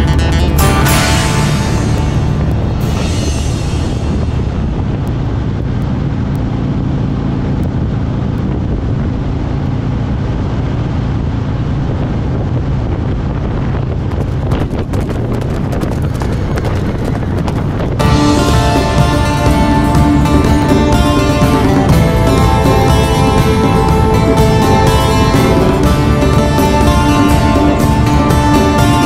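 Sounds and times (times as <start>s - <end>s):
music: 0.0s - 5.3s, 18.0s - 29.0s
motorcycle engine running: 0.0s - 29.0s
wind rushing over microphone: 1.0s - 29.0s.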